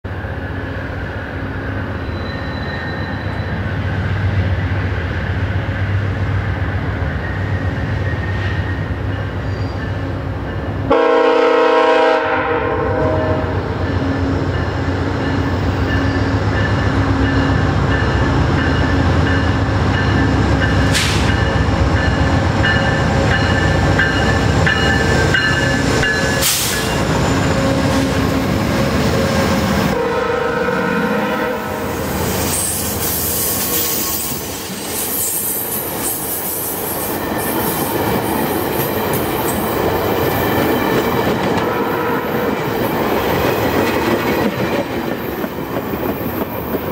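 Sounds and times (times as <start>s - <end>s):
train horn blast: 10.9s - 13.9s, 29.8s - 32.3s, 41.6s - 42.6s
train wheels rolling on rails: 13.5s - 30.0s, 30.8s - 46.9s.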